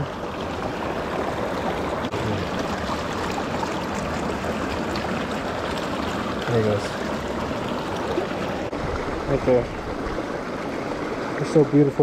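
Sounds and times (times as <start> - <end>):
stream water running over rocks: 0.0 - 12.0.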